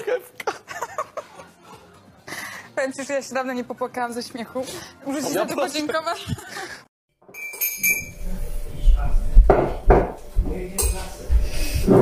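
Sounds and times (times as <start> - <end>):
dishes and utensils clinking: 7.2 - 8.4, 9.4 - 12.0.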